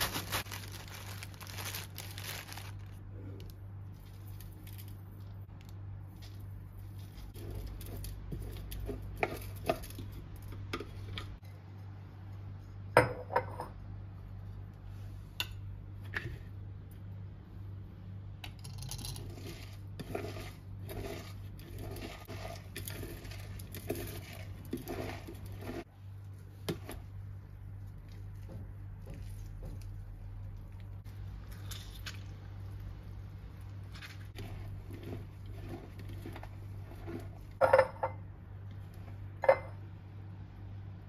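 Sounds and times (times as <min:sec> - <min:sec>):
hands scrunching cabbage: 0:00.0 - 0:02.9.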